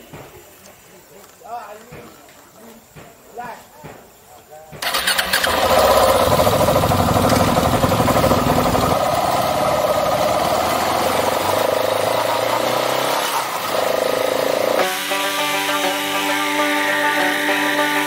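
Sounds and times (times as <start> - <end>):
motorcycle engine running: 4.8 - 18.0.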